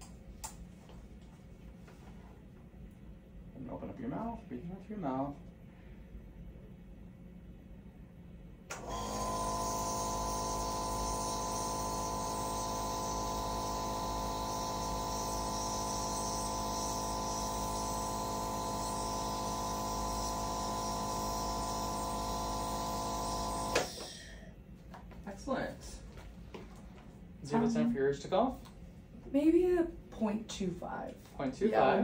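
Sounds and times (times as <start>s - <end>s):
nebulizer machine buzzing hum: 8.7s - 24.9s.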